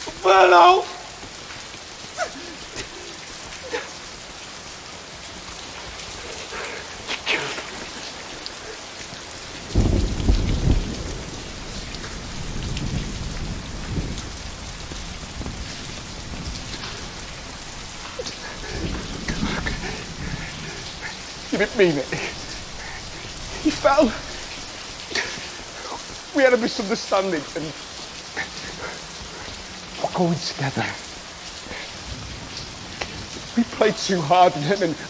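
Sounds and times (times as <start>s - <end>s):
sharp drips: 0.0s - 35.0s
steady rain falling: 0.0s - 35.0s
thunder rolling: 9.3s - 25.8s.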